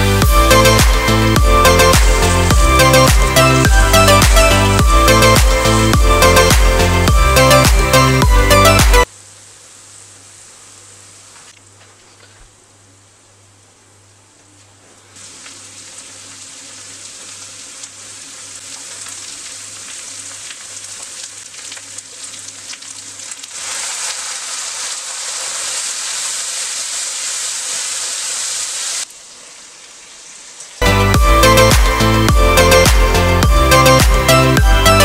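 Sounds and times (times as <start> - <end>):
onions sizzling in hot oil: 15.2 - 30.8.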